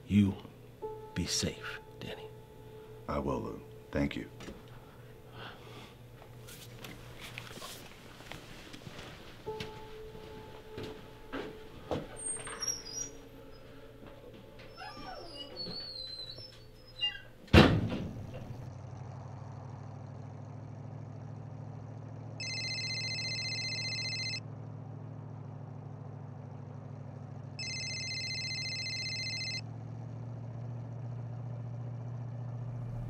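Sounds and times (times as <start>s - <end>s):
car engine hum and road noise: 0.0s - 15.8s, 16.4s - 22.5s, 24.4s - 33.0s
car door thud: 17.5s - 18.5s
phone electronic ringtone: 22.4s - 24.4s, 27.6s - 29.6s.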